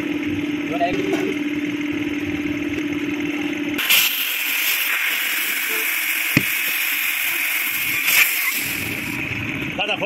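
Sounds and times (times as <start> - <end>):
steady machine hum: 0.0 - 10.0
compressed air hissing from hose: 3.8 - 9.2.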